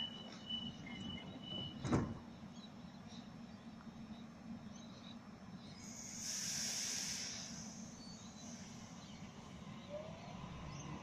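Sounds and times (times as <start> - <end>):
electric train humming: 5.7 - 11.0
hiss: 5.8 - 9.0.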